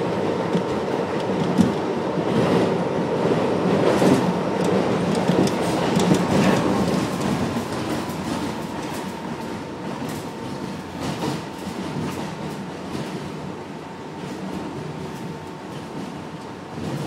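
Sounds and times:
train wheels rumbling on rail: 0.0s - 17.0s
clicks over rail joints: 4.0s - 9.1s.

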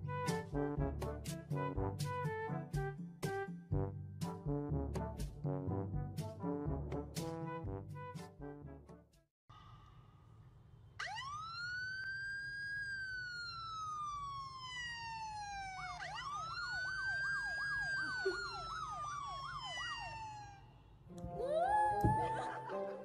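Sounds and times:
police siren wailing from phone: 11.0s - 20.7s.

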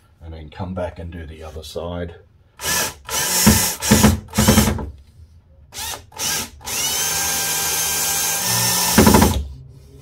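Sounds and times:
cordless drill driving a screw: 2.6s - 4.7s, 5.8s - 9.3s.

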